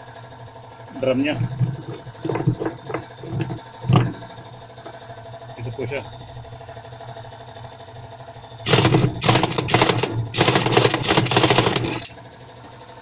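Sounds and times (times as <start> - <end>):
impact wrench hammering: 8.7 - 12.2.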